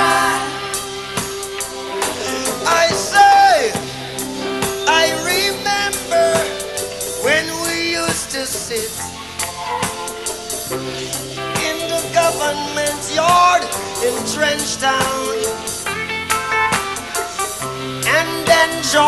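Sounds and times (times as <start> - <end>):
drum kit beat: 0.0 - 19.0
live reggae band: 0.0 - 19.0.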